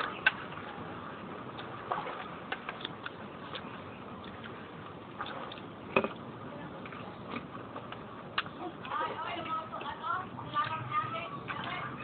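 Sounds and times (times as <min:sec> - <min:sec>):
person chewing and smacking: 0:02.4 - 0:09.0.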